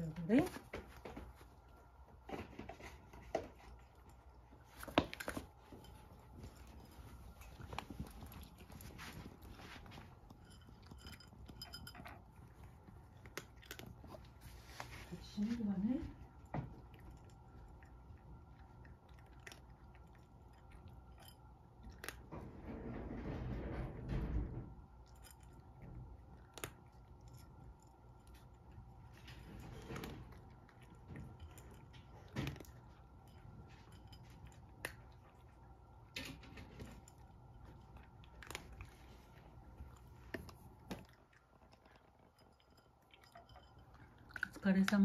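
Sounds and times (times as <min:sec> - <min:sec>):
low steady hum: 0:00.0 - 0:45.0
cat crunching dry kibble: 0:00.6 - 0:15.3, 0:16.1 - 0:22.3, 0:25.0 - 0:45.0.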